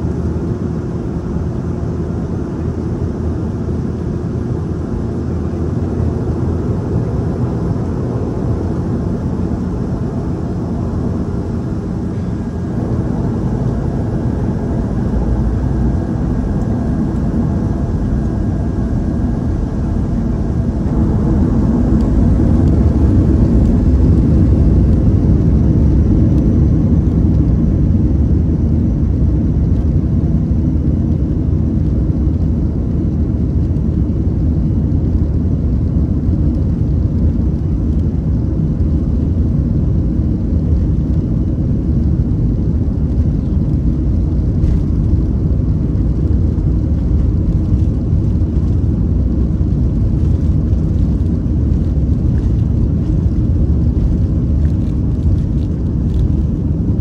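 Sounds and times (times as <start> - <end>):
faint high whine: 0.0 - 33.3
airliner cabin engine rumble: 0.0 - 57.0.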